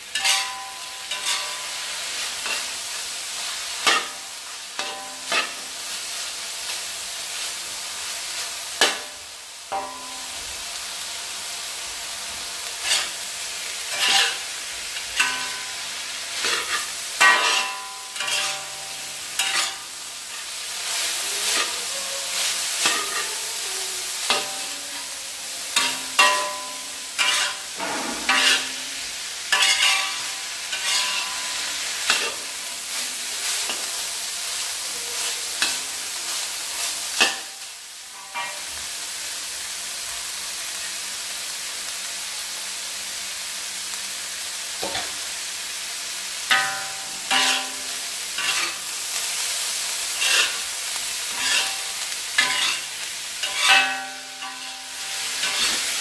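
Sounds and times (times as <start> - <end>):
metal spatula scraping a pan: 0.0 - 6.8, 12.8 - 23.5, 24.1 - 24.9, 25.6 - 33.9, 35.0 - 37.6, 38.2 - 38.8, 46.5 - 56.0
meat sizzling in a wok: 0.0 - 56.0.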